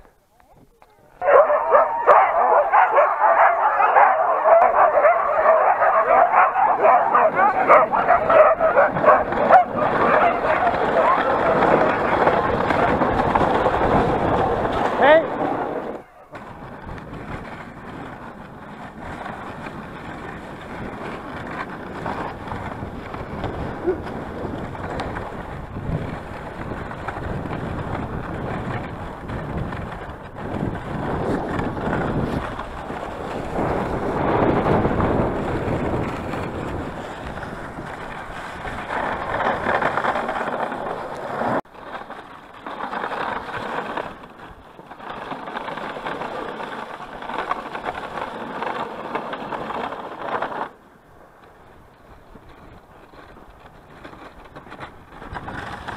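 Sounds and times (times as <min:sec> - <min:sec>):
sled runners scraping on snow: 0:01.0 - 0:55.9
wind buffeting microphone: 0:01.1 - 0:41.7, 0:51.0 - 0:55.9.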